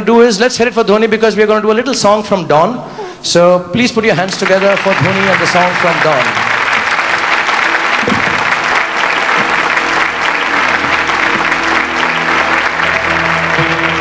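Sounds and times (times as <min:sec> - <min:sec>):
audience applauding: 0:04.1 - 0:14.0
music: 0:04.9 - 0:14.0.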